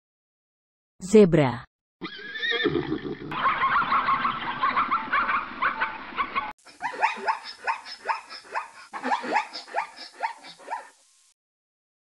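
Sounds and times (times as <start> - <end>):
quick rising yelping calls: 2.0 - 10.9
zebras barking and braying: 3.3 - 10.9.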